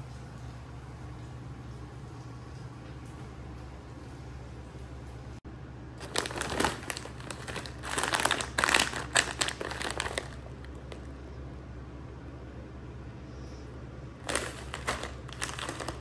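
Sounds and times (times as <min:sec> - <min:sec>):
plastic pouch crinkling: 0:06.0 - 0:11.1, 0:14.2 - 0:16.0.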